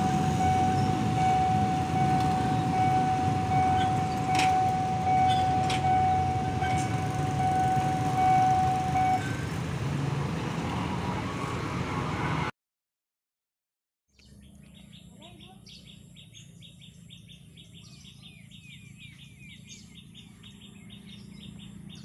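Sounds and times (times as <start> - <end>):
level crossing alarm tone: 0.0 - 9.5
motorcycles and cars passing: 0.0 - 12.5, 14.4 - 22.0.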